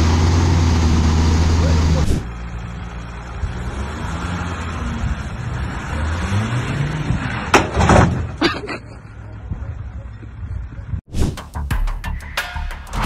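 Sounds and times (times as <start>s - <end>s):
truck engine revving: 0.0s - 8.4s.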